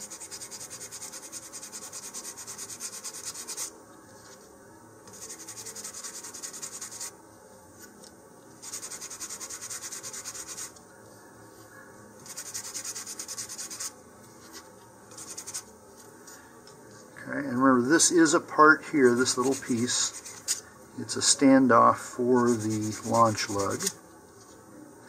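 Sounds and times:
sandpaper rubbing on wood: 0.0 - 3.7, 5.1 - 7.1, 8.6 - 10.7, 12.2 - 13.9, 15.2 - 15.7, 18.9 - 20.6, 22.4 - 24.0.

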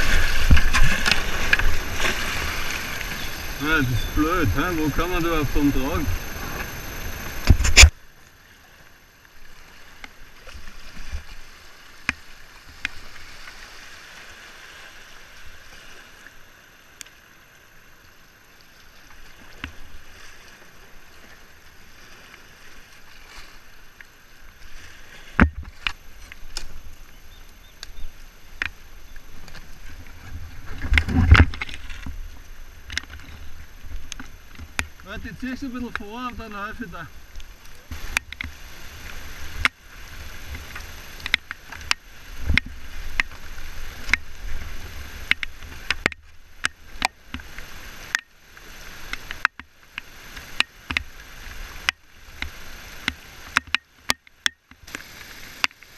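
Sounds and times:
paddle and hull knocking on stones: 0.0 - 7.9, 25.2 - 26.8, 28.1 - 39.8, 40.4 - 48.4
kayak scraping branches: 0.0 - 16.5, 18.6 - 55.9
water rushing: 0.0 - 55.9.

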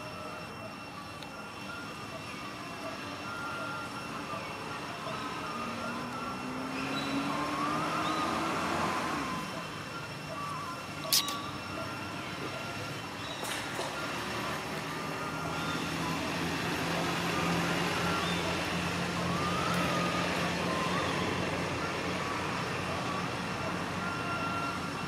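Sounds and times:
faint high chirps: 0.0 - 14.2
motor vehicle engine hum: 0.0 - 25.0
outdoor background noise: 0.0 - 25.0.

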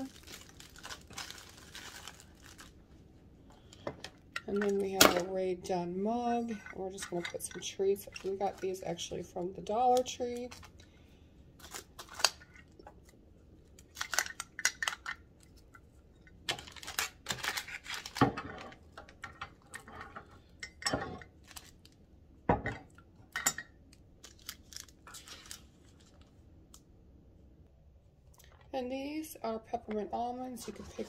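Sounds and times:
mug and packages clicking and rustling: 0.0 - 2.7, 3.7 - 5.3, 6.3 - 10.8, 13.8 - 15.6, 16.4 - 19.9.

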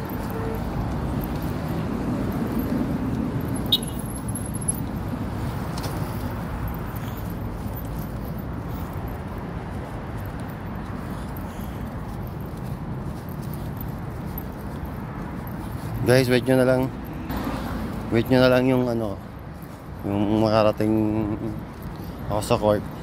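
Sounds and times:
traffic rumble: 0.0 - 23.0
car passing close: 16.1 - 18.5.

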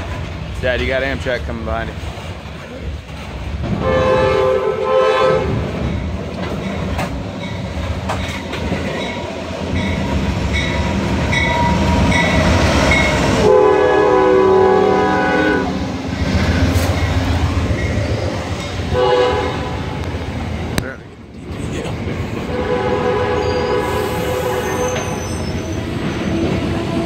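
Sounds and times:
train rumble and wheel clatter: 0.0 - 27.0
locomotive air horn: 3.8 - 5.6, 13.4 - 15.8, 18.9 - 19.9, 22.5 - 25.3.

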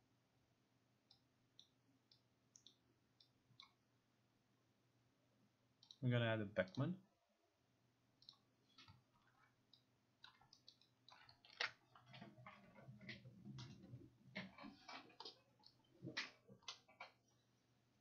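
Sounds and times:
computer mouse clicks: 1.1 - 3.8, 5.8 - 6.0, 8.2 - 9.0, 9.7 - 12.2.

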